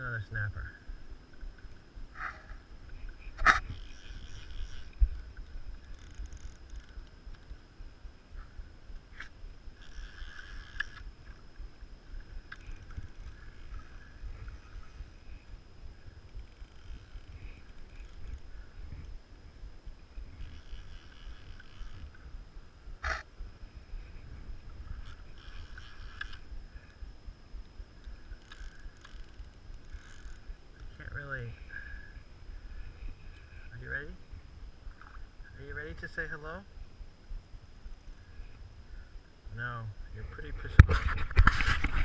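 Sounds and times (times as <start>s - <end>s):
wind rumble on microphone: 0.0s - 31.5s, 32.4s - 42.0s.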